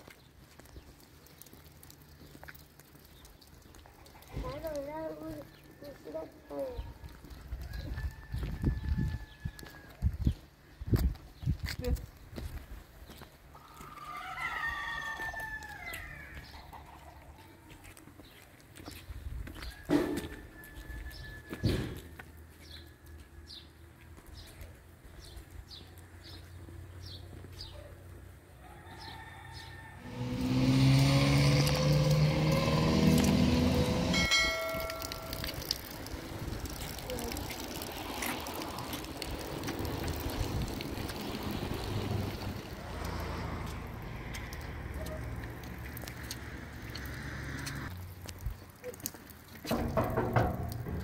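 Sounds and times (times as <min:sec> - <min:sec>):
footsteps on a paved road: 0:00.0 - 0:30.0, 0:30.7 - 0:51.0
wind buffeting the microphone: 0:07.0 - 0:12.8.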